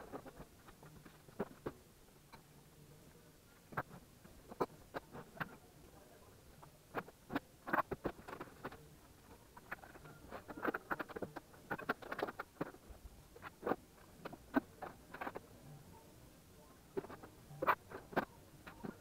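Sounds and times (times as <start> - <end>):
objects being handled: 0.0 - 2.5, 3.6 - 5.6, 6.6 - 15.5.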